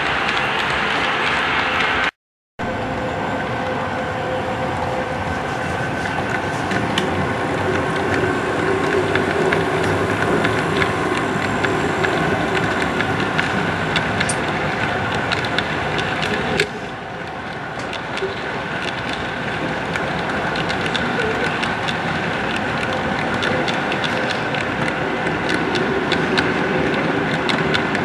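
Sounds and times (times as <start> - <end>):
quick clicks from wheels: 7.7 - 28.0.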